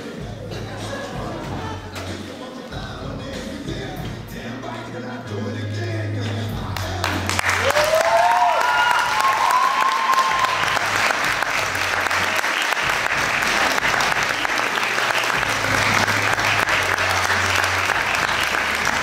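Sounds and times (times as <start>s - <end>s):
audience applauding: 6.8s - 19.0s
crowd cheering: 6.8s - 19.0s.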